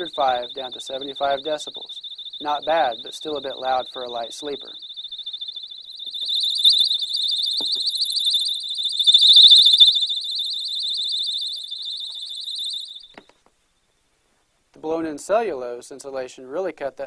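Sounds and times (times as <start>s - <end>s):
electronic alarm pulsing high tone: 0.0s - 13.1s.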